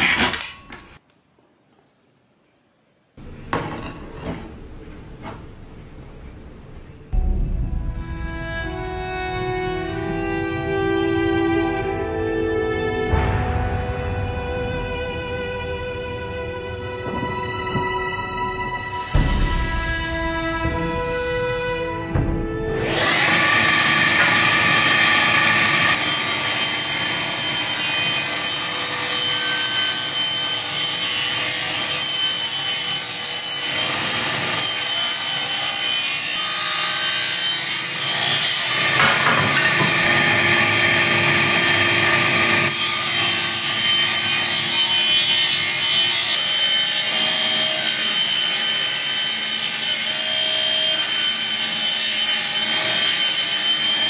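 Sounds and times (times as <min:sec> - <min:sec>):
table saw ripping wood: 0:00.0 - 0:01.0, 0:22.4 - 0:54.0.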